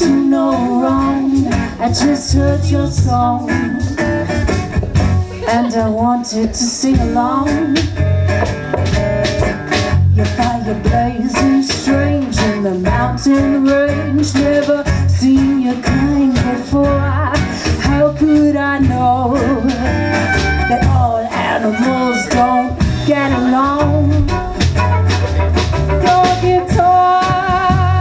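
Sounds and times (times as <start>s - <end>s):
folk band playing: 0.0s - 28.0s
sliding melody line: 18.2s - 26.5s.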